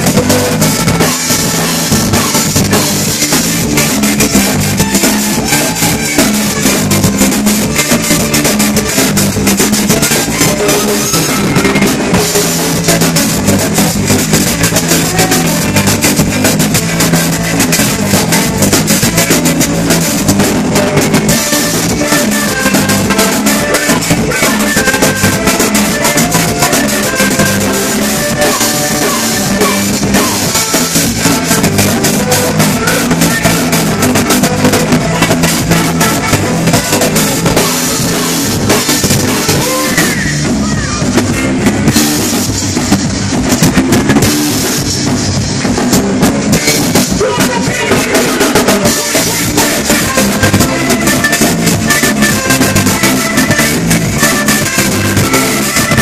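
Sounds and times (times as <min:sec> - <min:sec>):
horns playing: 0:00.0 - 0:43.2, 0:46.5 - 0:56.0
drum kit beat: 0:00.0 - 0:56.0
electric guitar: 0:00.0 - 0:56.0
live band playing cumbia: 0:00.0 - 0:56.0.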